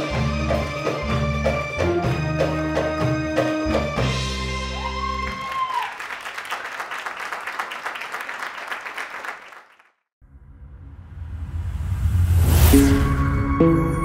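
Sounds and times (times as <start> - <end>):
keyboard and hand drums band: 0.0 - 5.2
audience applause: 4.7 - 10.0.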